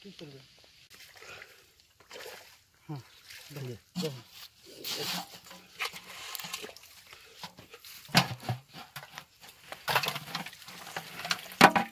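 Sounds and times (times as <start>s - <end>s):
wet fish slapping and rattling in metal: 4.8s - 11.9s.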